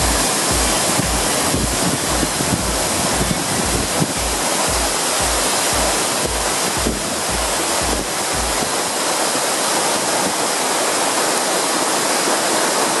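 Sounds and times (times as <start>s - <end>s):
music with low beat: 0.0s - 8.8s
waterfall rushing: 0.0s - 13.0s.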